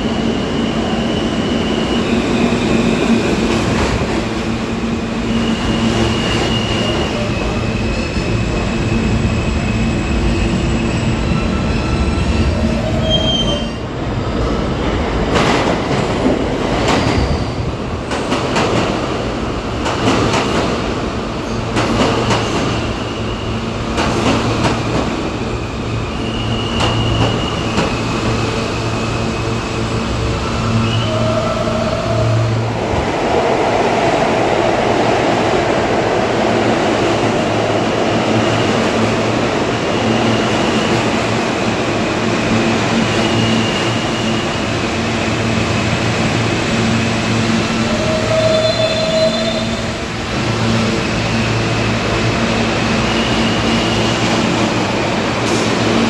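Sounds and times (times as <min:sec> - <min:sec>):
subway train rumble: 0:00.0 - 0:56.0
wheel squeal: 0:10.6 - 0:13.8, 0:26.2 - 0:27.9.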